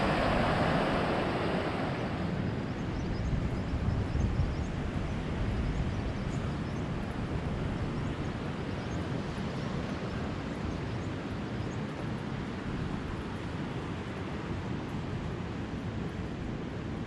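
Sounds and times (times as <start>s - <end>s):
ocean surf breaking: 0.0s - 3.0s
wind buffeting microphone: 0.0s - 17.0s.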